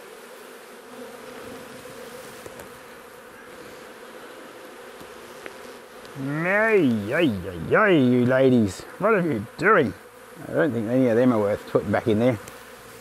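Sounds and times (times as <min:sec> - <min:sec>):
bees buzzing: 0:00.0 - 0:13.0
faint ticks: 0:05.0 - 0:06.2, 0:12.4 - 0:12.6.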